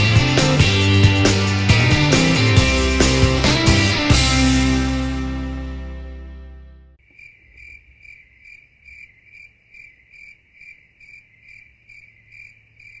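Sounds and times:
crickets chirping: 0:07.0 - 0:13.0.

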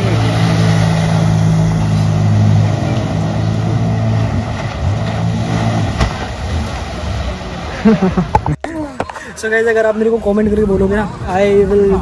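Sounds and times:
jet ski engine running: 0:00.0 - 0:08.5.

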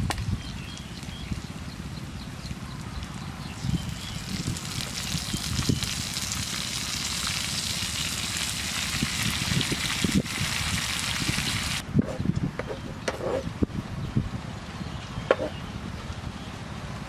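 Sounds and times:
chicken livers sizzling in a frying pan: 0:03.6 - 0:11.8.

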